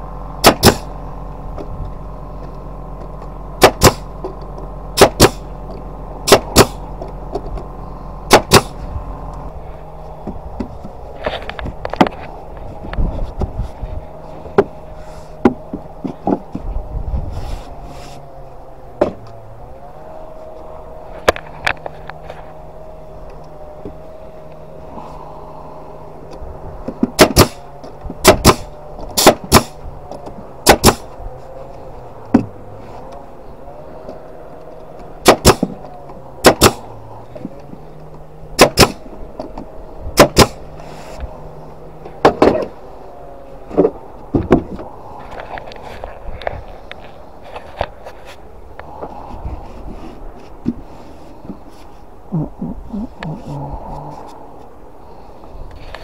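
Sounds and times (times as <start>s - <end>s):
air compressor humming: 0.0s - 54.4s
nail gun shots: 0.4s - 0.9s, 3.6s - 4.1s, 5.0s - 5.5s, 6.2s - 6.8s, 8.3s - 8.8s, 27.1s - 27.6s, 28.2s - 29.8s, 30.6s - 31.1s, 35.2s - 35.8s, 36.4s - 36.9s, 38.6s - 39.1s, 40.2s - 40.6s
wooden boards knocking: 42.2s - 42.7s.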